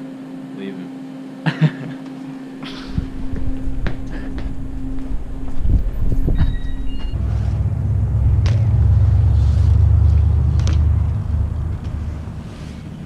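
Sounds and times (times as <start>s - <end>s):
loud low rumble: 2.9s - 13.0s.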